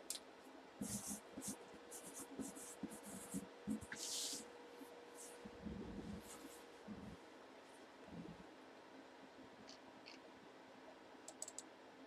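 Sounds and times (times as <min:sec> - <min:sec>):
faint steady hum: 0:00.0 - 0:12.0
pen strokes on cardboard: 0:00.8 - 0:04.4.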